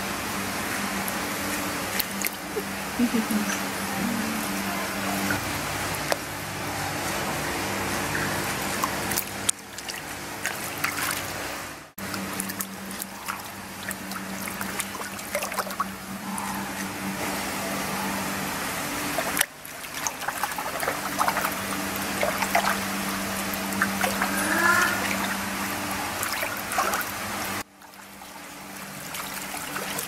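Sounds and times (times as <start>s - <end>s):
steady low hum: 0.0s - 30.0s
water sloshing and dripping: 0.4s - 30.0s
small splashes: 8.1s - 30.0s.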